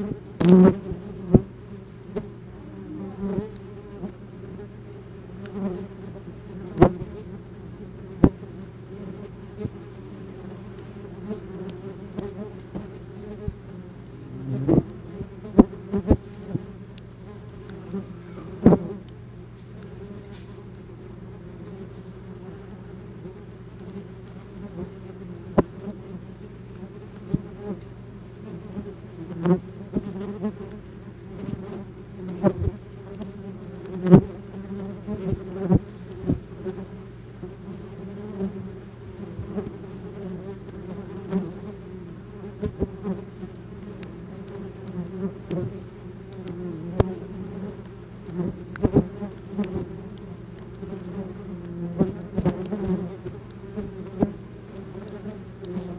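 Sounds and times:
wasps buzzing: 0.0s - 55.9s.

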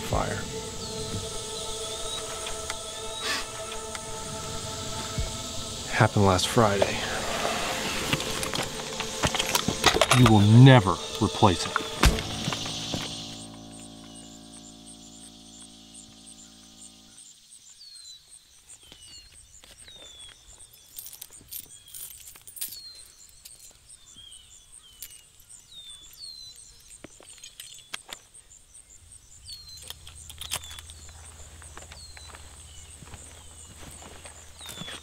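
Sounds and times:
background music: 0.0s - 17.2s
low hum: 0.0s - 17.3s, 29.0s - 35.0s
high insect pulse: 0.0s - 18.8s, 26.7s - 35.0s
bird chirping: 0.0s - 22.1s, 22.8s - 35.0s
footsteps crunching through leaves: 31.2s - 35.0s.

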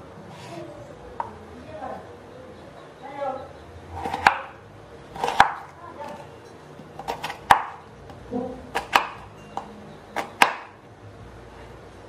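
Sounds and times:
knife slicing potato: 4.0s - 4.5s, 5.1s - 6.2s, 6.8s - 10.7s.

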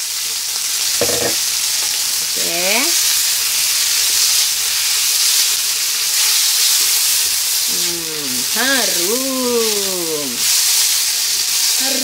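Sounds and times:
food sizzling in hot oil: 0.0s - 12.0s
spatula turning food in wok: 1.0s - 1.4s.

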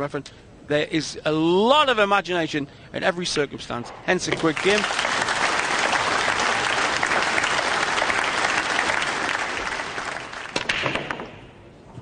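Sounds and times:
audience applauding: 4.4s - 10.6s.

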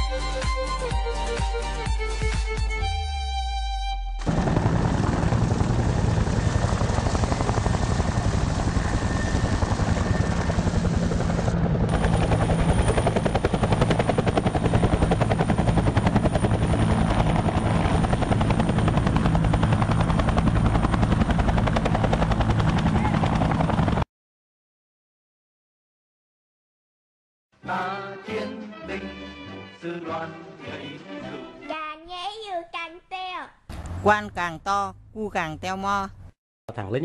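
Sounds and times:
helicopter engine noise: 4.2s - 24.0s
helicopter rotor beating: 4.2s - 24.0s.

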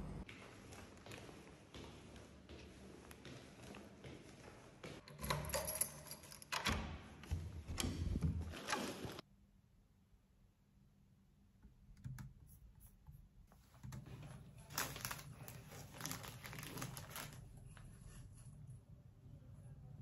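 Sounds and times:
plastic wrapper crinkling: 14.6s - 17.4s.

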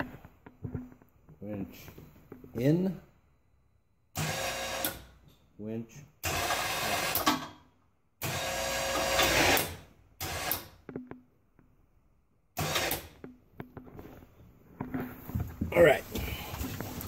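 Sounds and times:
electric winch motor running: 4.2s - 5.0s, 8.2s - 10.6s, 12.6s - 13.1s.

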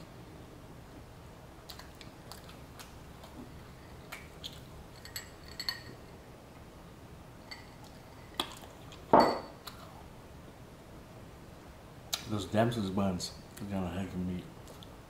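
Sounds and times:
glass clinks: 5.0s - 5.9s, 9.1s - 9.6s.

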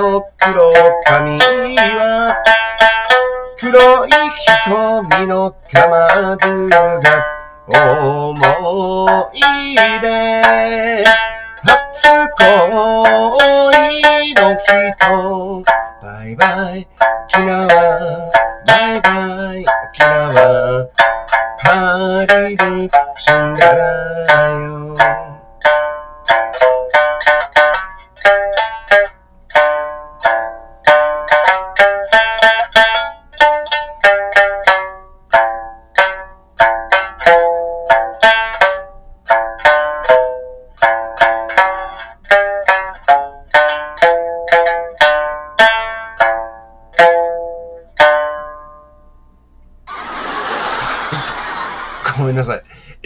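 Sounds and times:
man singing: 0.0s - 2.5s, 3.6s - 21.0s, 21.6s - 25.4s
plucked sanshin: 0.0s - 49.1s, 49.9s - 53.0s.

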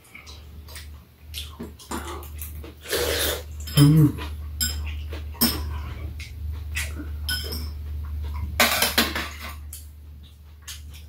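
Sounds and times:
steady low hum: 0.0s - 11.0s
utensils clinking against bowls: 1.9s - 9.8s.

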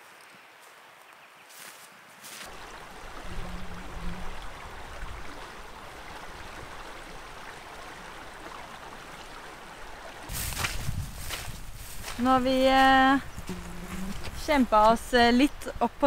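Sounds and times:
footsteps through grass: 0.0s - 2.6s, 10.3s - 15.0s
river flowing over rocks: 2.5s - 10.3s.

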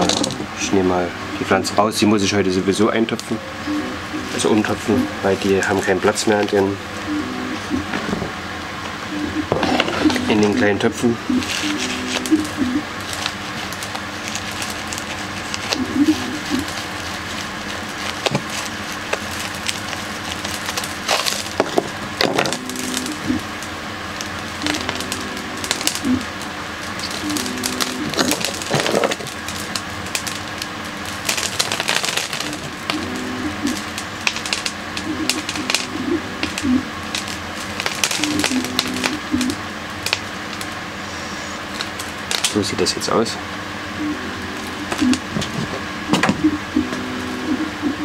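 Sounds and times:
soil and roots crackling: 4.2s - 6.8s, 10.0s - 40.8s, 41.6s - 43.4s.

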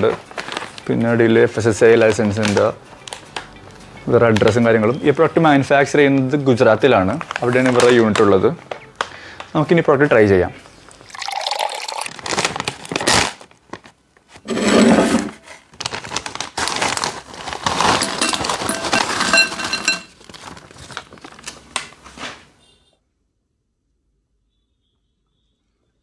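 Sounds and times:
snack bag crinkling: 0.0s - 0.9s, 10.9s - 14.4s, 15.5s - 19.5s, 20.1s - 21.9s
chips clinking into ceramic bowl: 17.8s - 20.2s.

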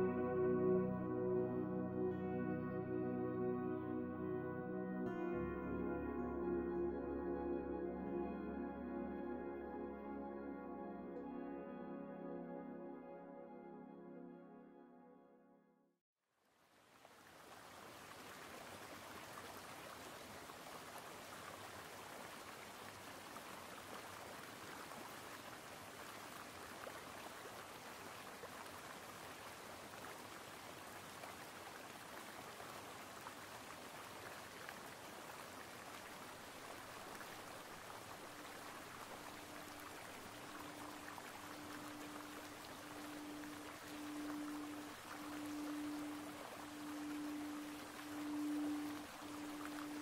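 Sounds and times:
sustained low tone: 0.0s - 15.7s, 38.4s - 50.0s
running water rushing: 16.7s - 50.0s.

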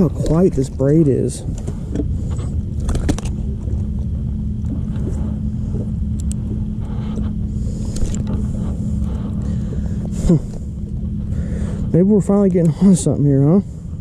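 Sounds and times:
electric trolling motor humming: 0.0s - 14.0s.

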